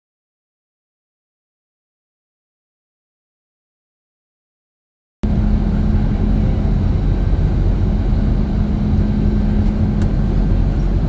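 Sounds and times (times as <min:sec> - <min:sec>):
jet airliner cabin noise: 0:05.2 - 0:11.0.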